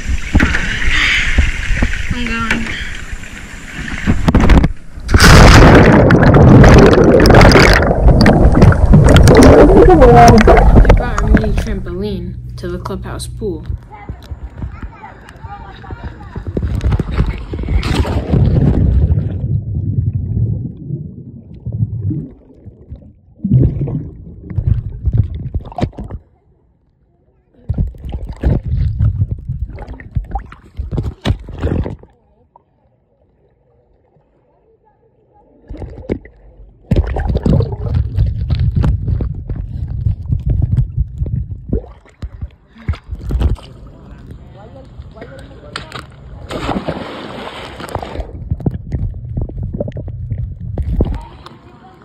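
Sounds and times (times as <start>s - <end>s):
underwater rushing bubbling water: 0.0s - 11.6s, 16.3s - 26.2s, 27.8s - 32.0s, 35.7s - 43.6s, 46.7s - 51.3s
loud splash into water: 3.8s - 11.0s, 16.9s - 20.7s, 46.5s - 48.4s
phone splashing into pool: 45.9s - 48.3s.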